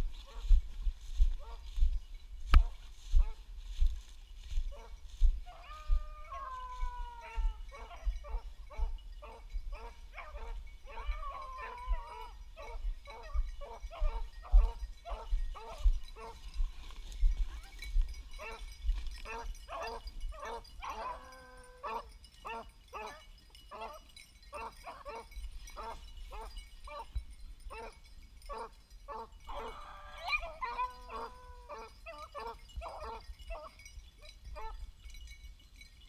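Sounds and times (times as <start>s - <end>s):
dogs barking repeatedly: 4.7s - 16.6s, 17.7s - 34.8s
dog howling: 5.5s - 8.4s, 9.8s - 15.8s, 19.3s - 22.1s, 29.5s - 33.7s.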